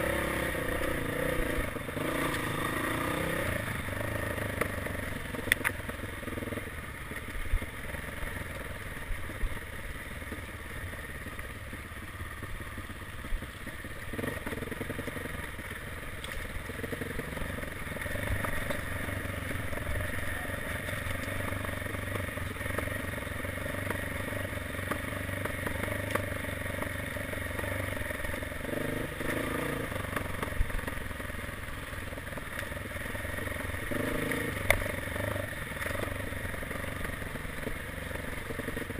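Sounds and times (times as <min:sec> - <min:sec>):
dirt bike engine revving: 0:00.0 - 0:05.6, 0:14.0 - 0:15.7, 0:16.7 - 0:30.9, 0:33.7 - 0:38.9.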